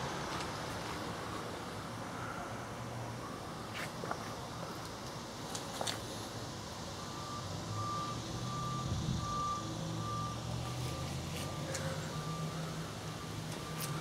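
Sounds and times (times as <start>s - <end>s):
backup alarm beeping: 7.0s - 12.7s.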